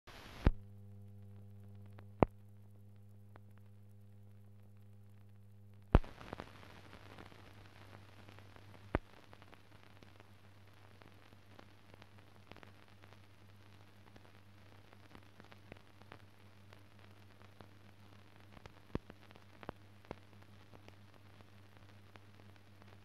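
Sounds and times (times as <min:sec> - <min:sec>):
faint crackling hiss: 0:00.1 - 0:23.0
low steady hum: 0:00.1 - 0:23.0.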